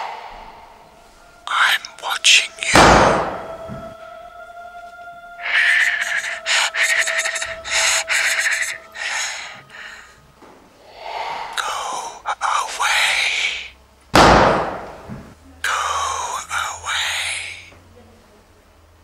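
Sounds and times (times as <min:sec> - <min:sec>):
breathy whooshes gliding in pitch: 0:00.0 - 0:12.3
sudden loud hit: 0:02.7 - 0:03.9, 0:14.2 - 0:15.3
breathy gasping: 0:05.4 - 0:12.6.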